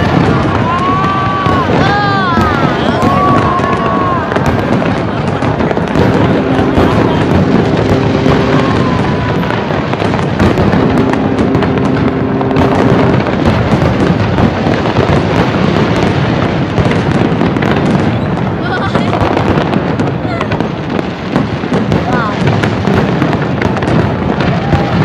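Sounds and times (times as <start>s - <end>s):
fireworks bangs and crackling: 0.0s - 25.0s
steady low tone: 10.6s - 13.9s.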